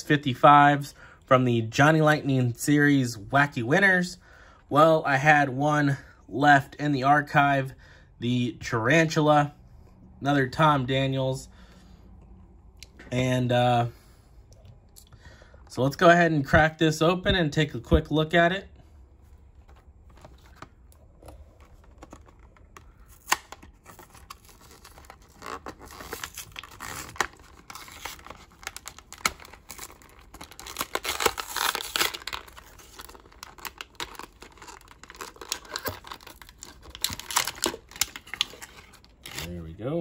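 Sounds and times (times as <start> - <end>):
plastic blister pack tearing: 21.8 - 39.6.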